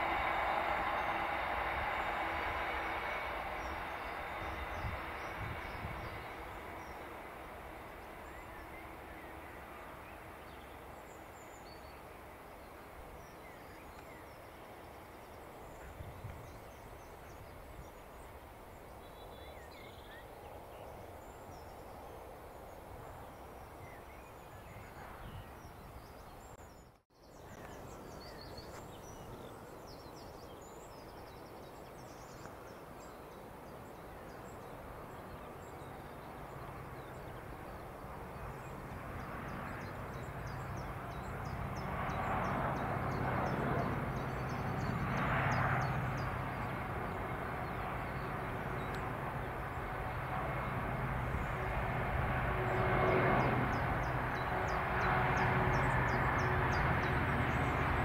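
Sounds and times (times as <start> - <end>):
diesel locomotive drone: 0.0 - 25.9, 31.7 - 58.0
faint outdoor background: 0.0 - 58.0
birds singing: 33.8 - 51.7.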